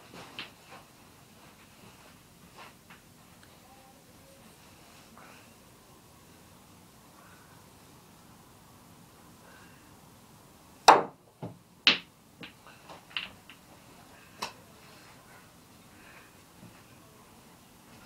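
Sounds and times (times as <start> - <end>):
snooker balls clicking: 11.9 - 13.7.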